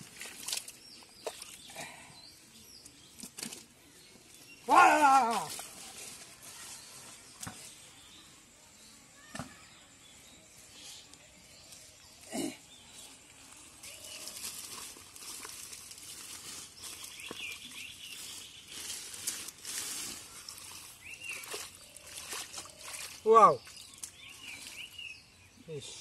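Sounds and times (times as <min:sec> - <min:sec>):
wet mud squelching: 0:00.0 - 0:02.1, 0:13.7 - 0:25.0
plant stems rustling: 0:13.0 - 0:25.0.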